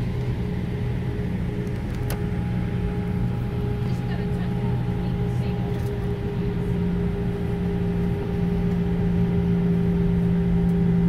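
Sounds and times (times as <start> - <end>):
jet engines droning: 0.0 - 11.0.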